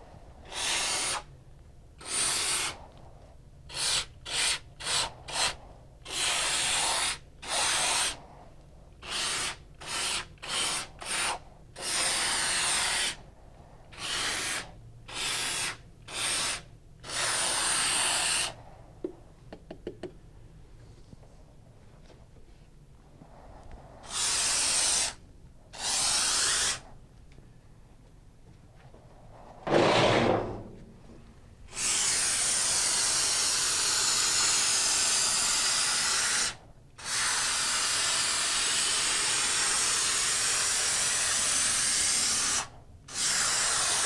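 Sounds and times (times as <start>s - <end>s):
spray foam gun hissing: 0.0s - 1.3s, 2.0s - 2.8s, 3.7s - 8.2s, 9.0s - 13.2s, 13.9s - 18.6s, 24.0s - 26.8s, 31.7s - 44.0s.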